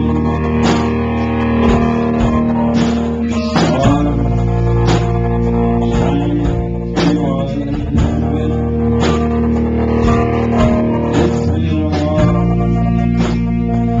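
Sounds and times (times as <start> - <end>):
man singing: 0.0 - 1.0, 2.7 - 14.0
bass: 0.0 - 14.0
drum beat: 0.0 - 14.0
electric guitar: 0.0 - 14.0.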